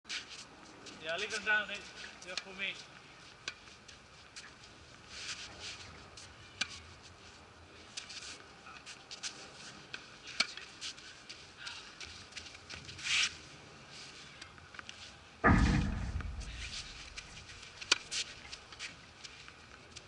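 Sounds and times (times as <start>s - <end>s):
rustle: 0.1s - 20.0s
footsteps: 15.4s - 20.0s.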